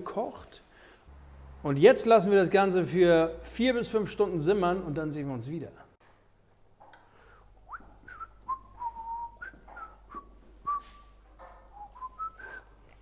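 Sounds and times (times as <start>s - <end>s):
person whistling a tune: 7.7s - 11.1s, 11.8s - 12.8s.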